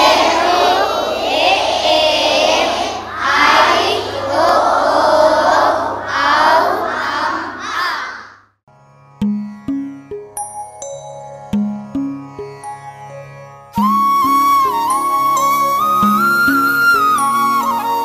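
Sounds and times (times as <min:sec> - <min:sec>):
children chanting in unison: 0:00.0 - 0:08.5
plucked string instrument notes: 0:09.1 - 0:10.5, 0:11.4 - 0:17.2.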